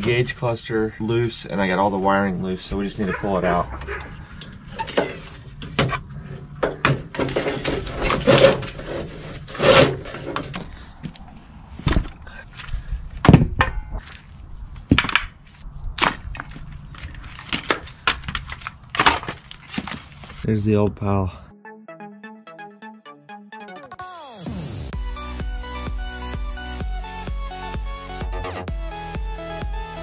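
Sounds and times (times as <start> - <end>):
metal parts knocking on wood: 6.6 - 9.0
wiring rustling: 13.2 - 20.5.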